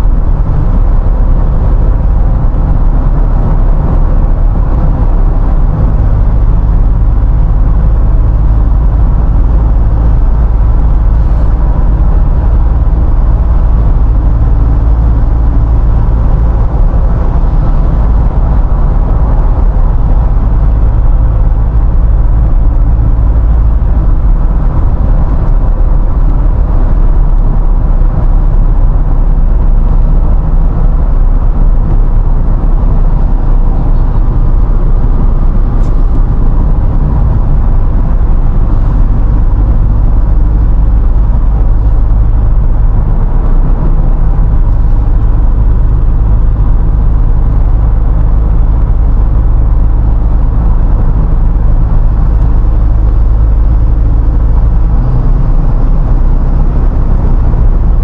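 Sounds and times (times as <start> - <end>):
road and engine rumble: 0.0 - 58.0.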